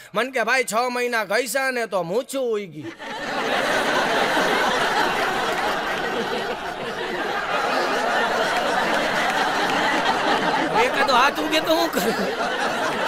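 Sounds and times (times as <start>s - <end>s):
audience laughing: 2.8s - 13.0s.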